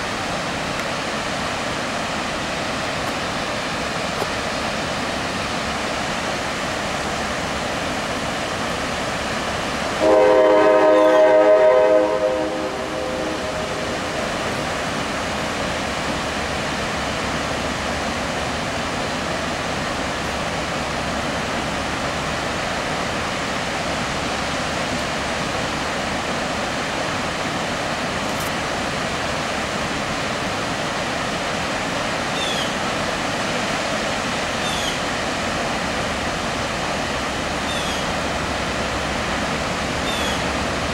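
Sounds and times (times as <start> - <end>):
train rumbling over steel bridge: 0.0 - 40.9
waterfall roaring: 0.0 - 40.9
locomotive air horn blast: 10.0 - 14.2.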